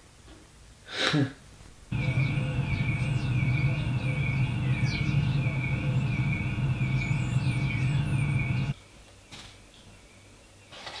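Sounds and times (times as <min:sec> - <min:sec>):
birds chirping: 0:01.9 - 0:08.8
steady low hum: 0:01.9 - 0:08.8.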